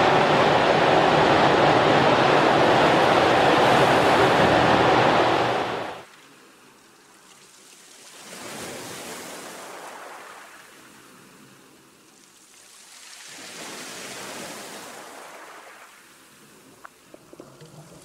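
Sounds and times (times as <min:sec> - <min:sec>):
ocean waves hissing surf: 0:00.0 - 0:06.1.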